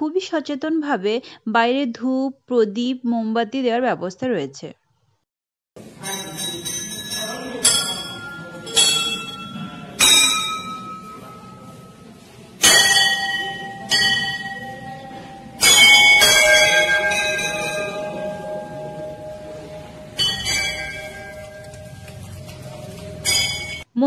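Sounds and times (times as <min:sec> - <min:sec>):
brass temple bells ringing: 0:05.9 - 0:23.9.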